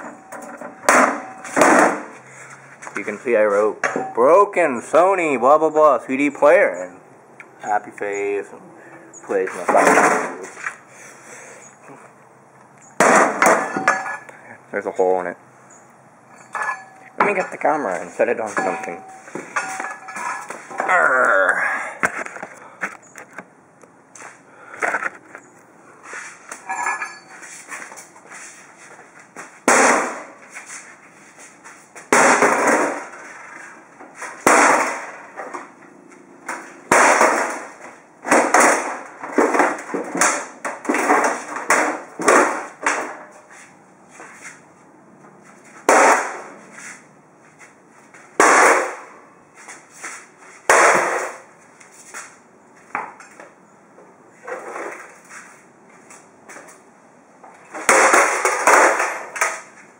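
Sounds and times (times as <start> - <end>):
pickaxe smashing plastic case: 0.8 - 2.1, 13.0 - 14.1, 29.6 - 30.3, 32.1 - 33.3, 34.2 - 35.6, 36.5 - 43.2, 48.4 - 49.0, 50.7 - 51.4, 57.8 - 59.7.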